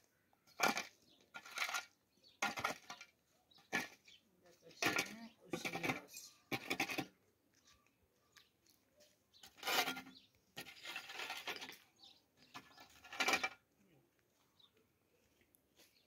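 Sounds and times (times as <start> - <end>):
shovel scraping stony ground: 0.4 - 7.2, 9.4 - 13.7.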